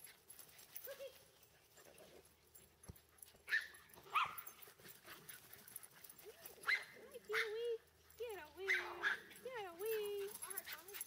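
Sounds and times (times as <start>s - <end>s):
small dogs yipping: 3.1s - 11.0s.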